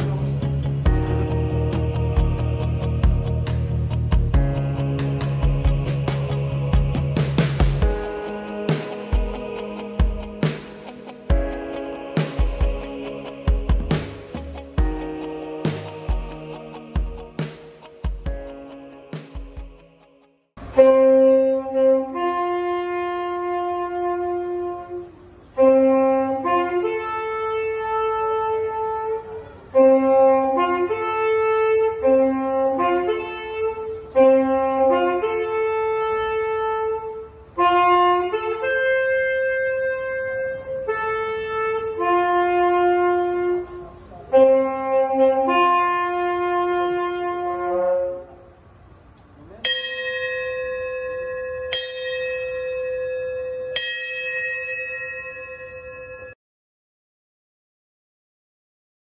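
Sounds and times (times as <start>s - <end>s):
wind instrument melody: 0.0s - 19.6s, 20.6s - 48.5s, 49.7s - 56.4s
ship's bell ringing: 49.6s - 56.4s.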